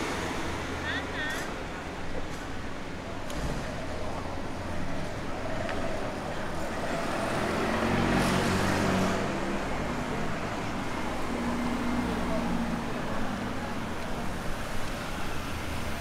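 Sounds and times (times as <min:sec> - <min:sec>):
car passing: 0:05.5 - 0:16.0.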